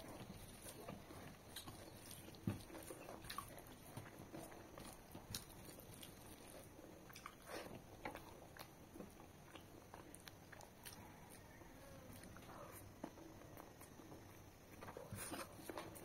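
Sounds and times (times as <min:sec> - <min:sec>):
chewing: 0:00.0 - 0:16.0
fingers mixing rice squishing: 0:00.0 - 0:16.0.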